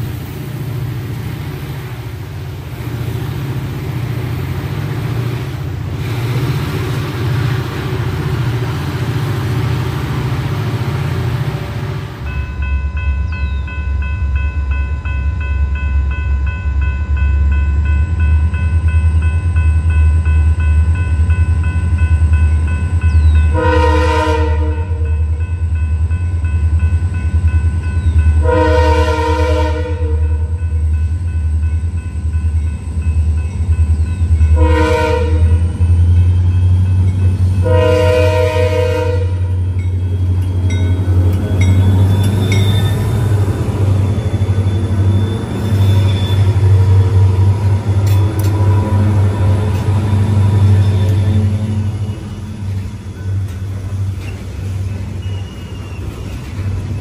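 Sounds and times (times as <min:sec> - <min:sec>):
diesel locomotive engine rumble: 0:00.0 - 0:57.0
train air horn blasts: 0:23.5 - 0:25.2, 0:28.4 - 0:30.5, 0:34.6 - 0:35.7, 0:37.6 - 0:39.6.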